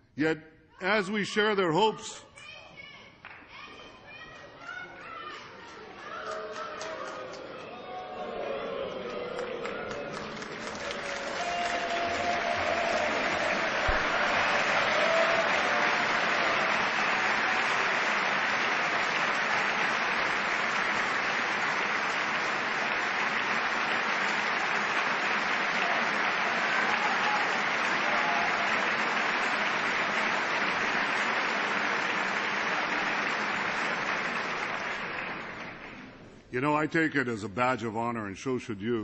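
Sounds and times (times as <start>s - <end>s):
audience applauding: 5.7s - 36.3s.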